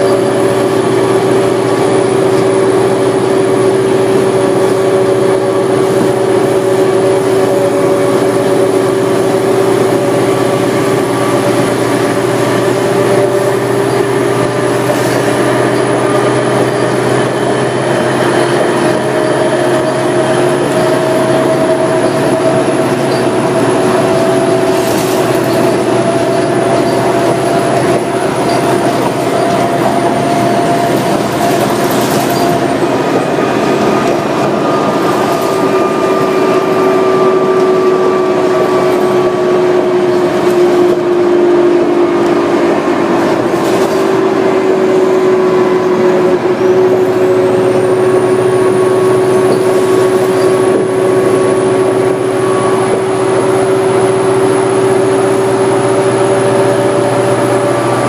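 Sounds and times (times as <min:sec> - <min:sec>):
bus engine and road noise: 0:00.0 - 0:58.0
whining tones drifting in pitch: 0:00.0 - 0:58.0.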